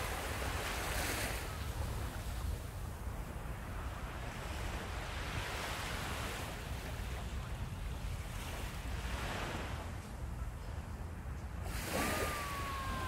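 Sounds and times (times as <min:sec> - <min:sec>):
wind rumbling on microphone: 0:00.0 - 0:13.0
surf washing onto sandy beach: 0:11.7 - 0:13.0.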